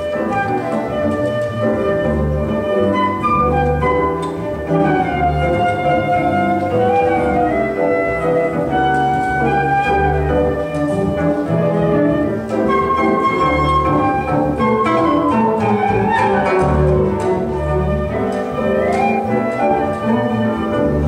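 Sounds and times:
flute melody: 0.0 - 21.0
jazz band accompaniment: 0.0 - 21.0.

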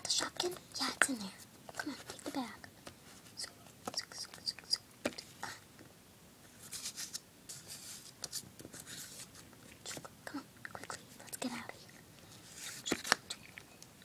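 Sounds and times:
soft rustle: 0.4 - 5.4, 6.4 - 10.1, 11.0 - 13.7.

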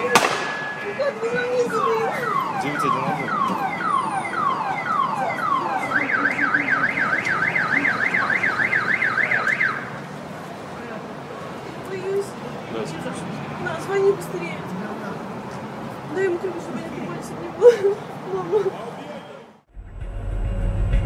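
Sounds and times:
car alarm chirping and warbling: 0.0 - 9.9.

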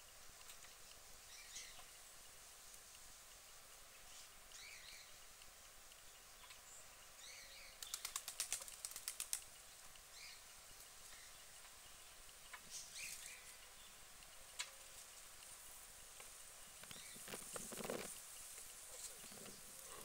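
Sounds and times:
small birds chirping: 0.0 - 20.0
flurry of sharp clicks: 7.8 - 10.1.

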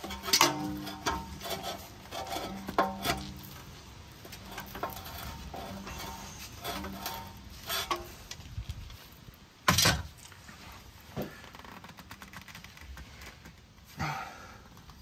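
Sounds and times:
loud metal scrape: 0.0 - 8.3.

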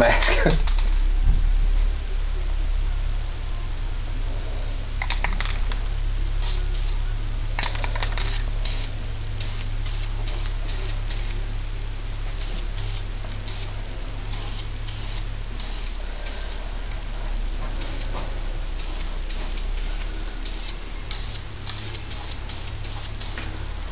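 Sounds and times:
steady low hum: 0.0 - 23.9
spray paint can hissing: 5.0 - 7.0, 7.6 - 11.4, 12.4 - 16.7, 17.7 - 23.6.

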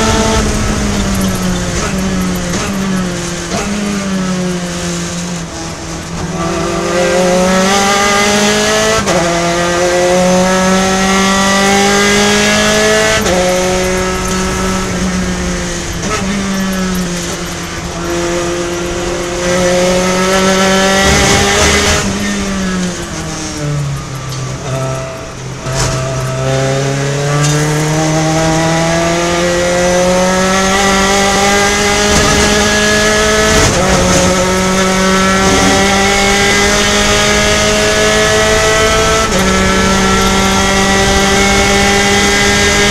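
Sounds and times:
race car engine revving: 0.0 - 42.9.

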